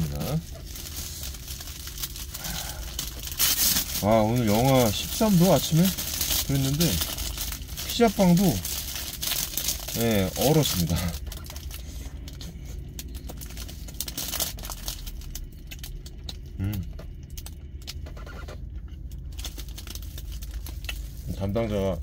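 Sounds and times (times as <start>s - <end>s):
plastic wrapper crinkling: 0.0s - 16.6s, 17.2s - 22.0s
chewing bread: 0.0s - 21.6s
low hum: 0.0s - 22.0s
person humming: 16.6s - 16.8s.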